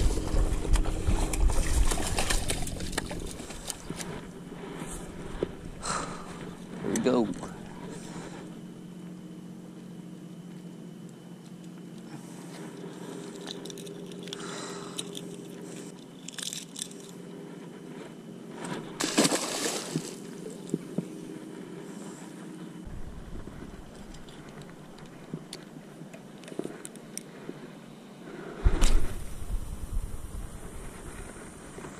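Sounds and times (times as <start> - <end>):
steady low hum: 0.0 - 31.9
water splashing on rocks: 19.0 - 20.2.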